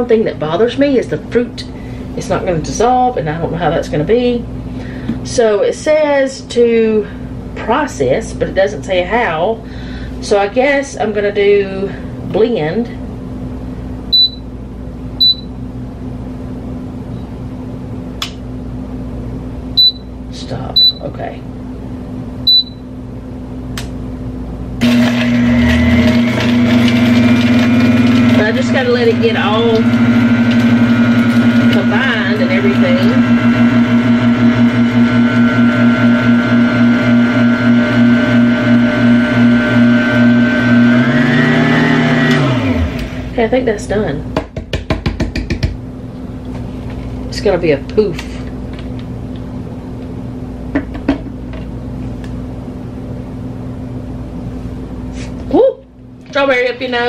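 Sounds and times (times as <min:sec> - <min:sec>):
low electrical hum: 0:00.0 - 0:41.3, 0:42.4 - 0:57.0
blender motor grinding: 0:24.8 - 0:43.4.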